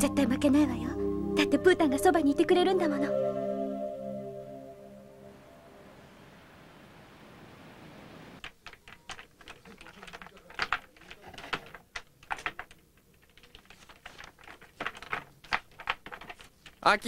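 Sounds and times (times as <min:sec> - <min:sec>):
typing on keyboard: 0:08.4 - 0:16.8.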